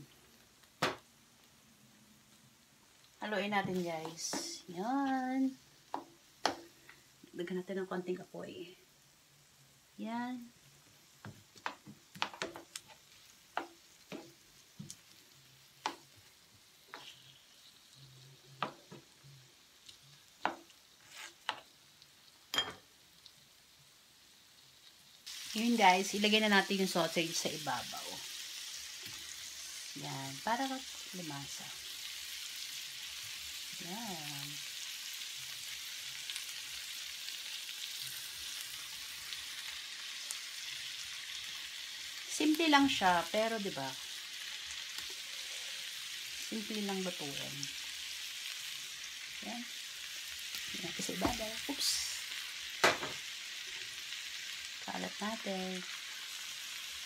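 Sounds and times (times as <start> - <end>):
faint frying sizzle: 0.0 - 57.0
spatula scraping and tapping pan: 5.9 - 6.8, 11.2 - 15.0, 15.8 - 16.2, 16.8 - 17.4, 18.6 - 19.1, 20.4 - 21.7.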